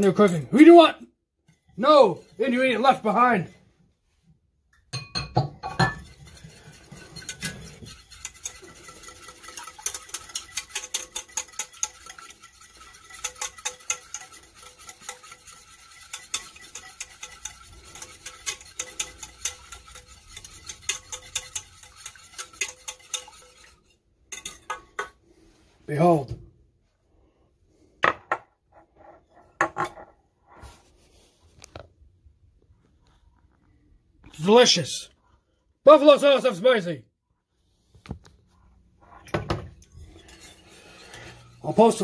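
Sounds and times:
wire whisk clinking against saucepan: 0:00.0 - 0:00.5, 0:04.8 - 0:25.1, 0:40.1 - 0:42.0.

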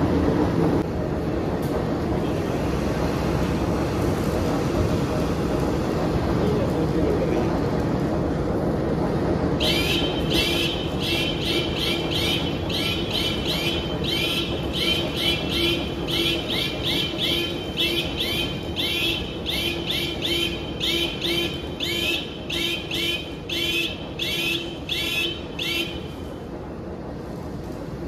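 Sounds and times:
machinery rumble and hum: 0:00.0 - 0:28.0
high repeating squeak: 0:09.6 - 0:26.1.

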